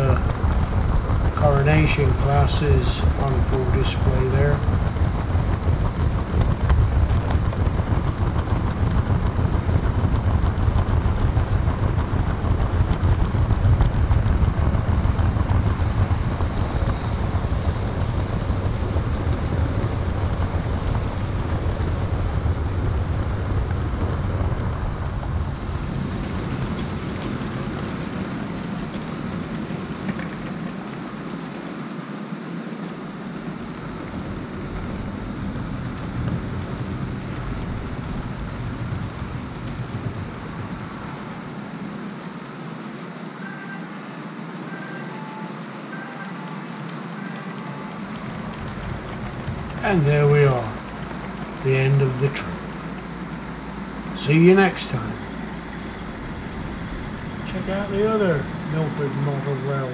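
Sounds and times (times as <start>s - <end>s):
model train rumbling on track: 0.0s - 43.8s, 44.4s - 59.9s
faint high squeal: 43.4s - 44.0s.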